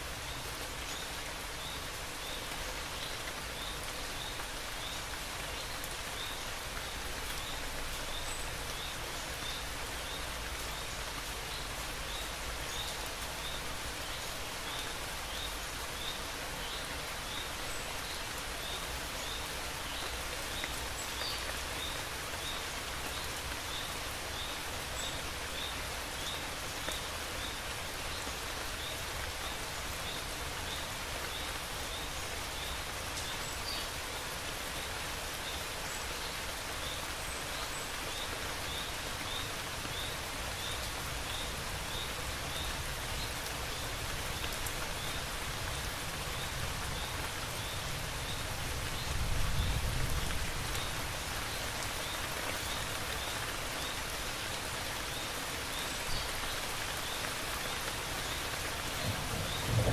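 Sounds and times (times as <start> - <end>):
steady rain falling: 0.0 - 59.9
low rumble of thunder: 58.9 - 59.9.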